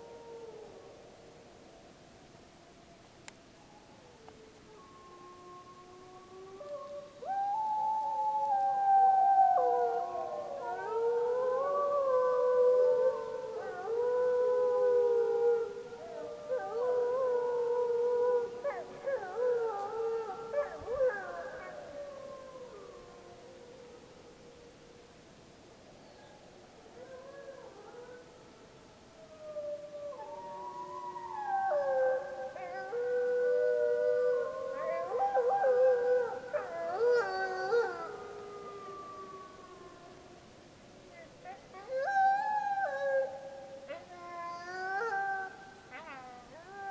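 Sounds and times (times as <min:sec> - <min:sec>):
wolves howling in chorus: 0:00.0 - 0:01.1, 0:03.6 - 0:24.4, 0:26.8 - 0:40.6, 0:41.2 - 0:46.9
wolf pup howling: 0:09.5 - 0:23.1, 0:29.5 - 0:40.0.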